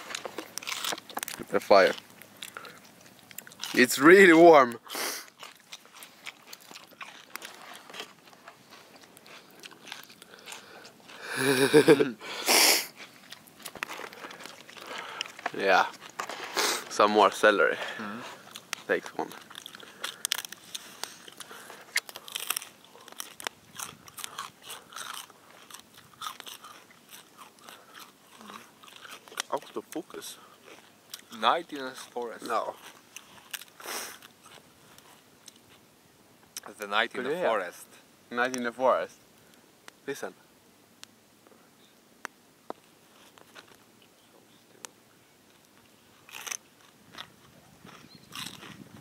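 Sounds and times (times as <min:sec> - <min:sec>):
celery being chewed: 0:00.0 - 0:17.0, 0:17.8 - 0:35.9, 0:42.7 - 0:49.0
short crunching burst: 0:16.2 - 0:17.0.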